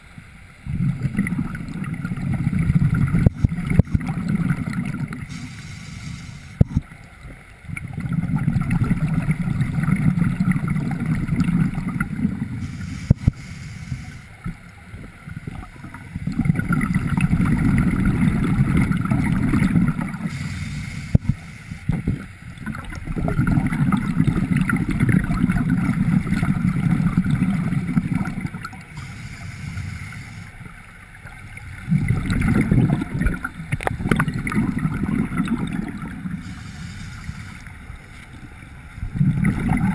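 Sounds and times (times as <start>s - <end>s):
gurgling exhaled bubbles: 0.6s - 6.9s, 7.7s - 13.4s, 15.3s - 30.3s, 31.6s - 37.6s, 39.0s - 39.9s
regulator hiss on inhale: 5.3s - 6.6s, 12.5s - 14.5s, 20.2s - 22.3s, 28.9s - 31.0s, 36.3s - 38.3s.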